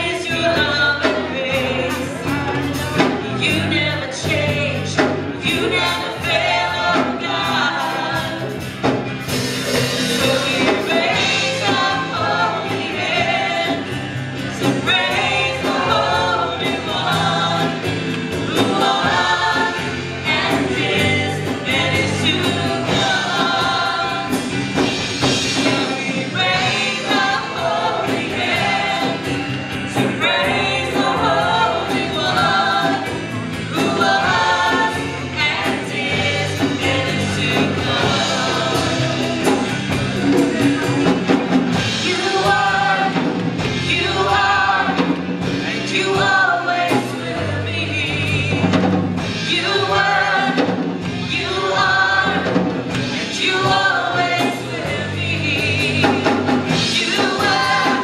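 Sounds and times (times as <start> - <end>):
woman singing into a microphone: 0.0 - 8.5, 42.0 - 58.0
drum kit: 0.0 - 58.0.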